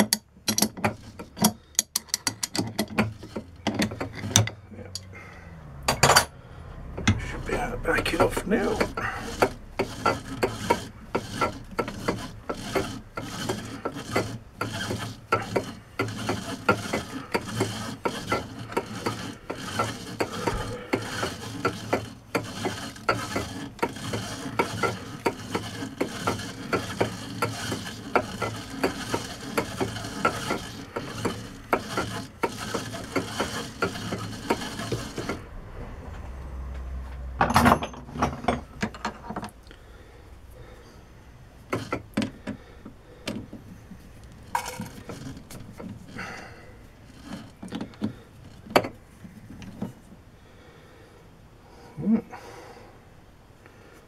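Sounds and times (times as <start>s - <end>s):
lathe chuck clicking: 0.0s - 5.1s, 8.0s - 35.5s, 41.7s - 42.6s, 43.2s - 49.0s.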